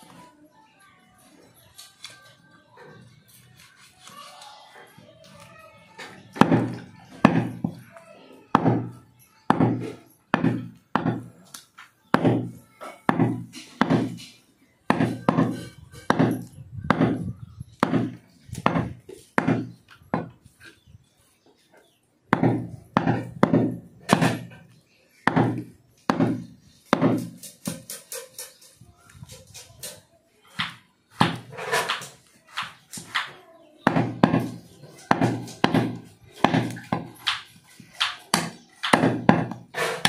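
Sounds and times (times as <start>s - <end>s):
cleaver chopping meat: 8.6s - 11.3s, 14.9s - 20.4s, 22.3s - 24.6s, 25.3s - 27.4s, 33.9s - 40.0s.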